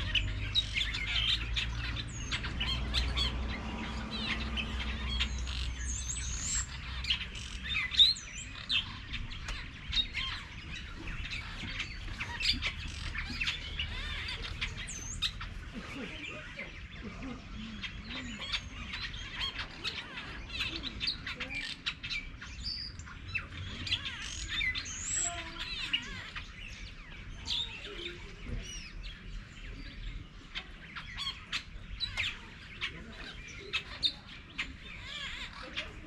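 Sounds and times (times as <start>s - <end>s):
birds chirping and calling: 0.0s - 36.0s.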